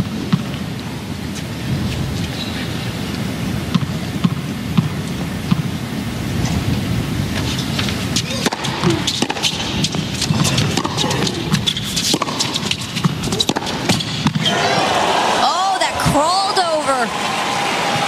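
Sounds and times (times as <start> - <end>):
rackets hitting tennis ball: 7.8 - 14.5
arena crowd noise: 13.4 - 18.0.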